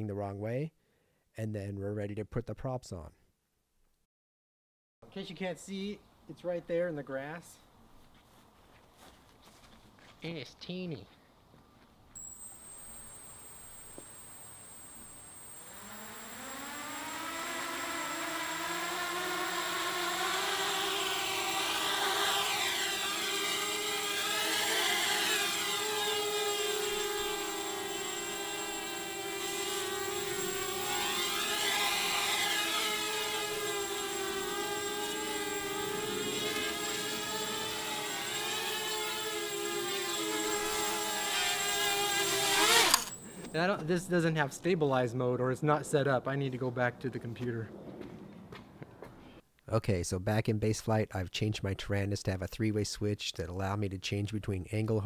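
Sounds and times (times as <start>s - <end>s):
quadcopter motors whining: 12.2s - 43.6s.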